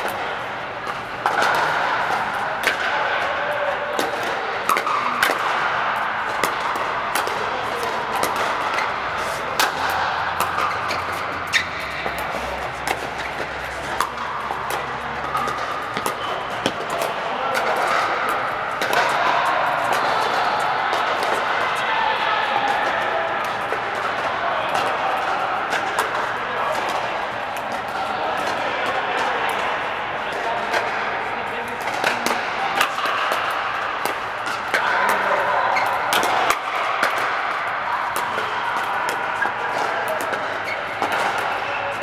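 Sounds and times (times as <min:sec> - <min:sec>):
paddles striking plastic balls: 0:03.9 - 0:21.4, 0:31.6 - 0:42.0.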